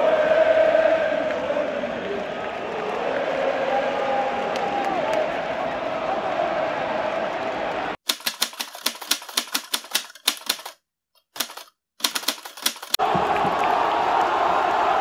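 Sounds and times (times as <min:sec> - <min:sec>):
stadium crowd roaring: 0:00.0 - 0:08.0, 0:13.0 - 0:15.0
typewriter key clicks: 0:08.1 - 0:10.8, 0:11.4 - 0:13.0.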